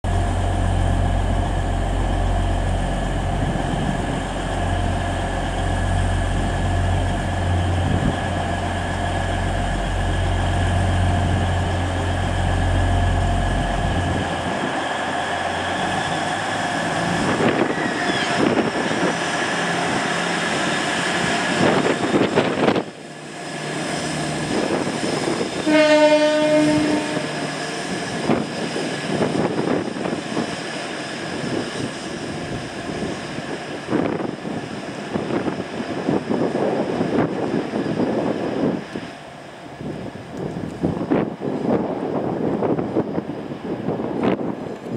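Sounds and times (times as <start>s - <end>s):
diesel train engine: 0.0s - 44.9s
train horn blast: 25.6s - 27.5s.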